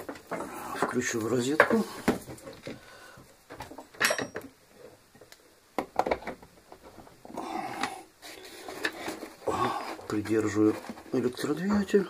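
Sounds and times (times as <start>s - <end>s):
handling clicks and knocks: 5.2s - 8.0s.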